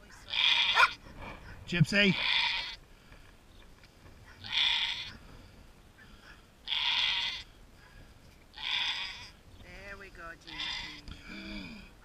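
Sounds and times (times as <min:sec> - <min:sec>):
goat bleating: 0:00.3 - 0:01.0, 0:02.1 - 0:02.8, 0:04.4 - 0:05.2, 0:06.6 - 0:07.5, 0:08.5 - 0:09.4, 0:10.4 - 0:11.8.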